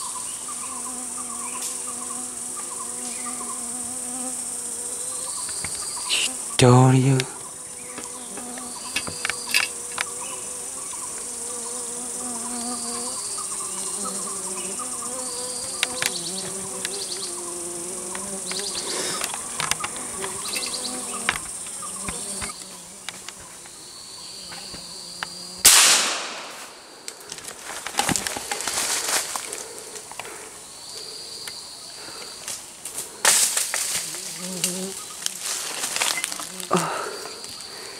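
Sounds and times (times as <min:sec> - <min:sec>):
insects buzzing: 0:00.0 - 0:37.9.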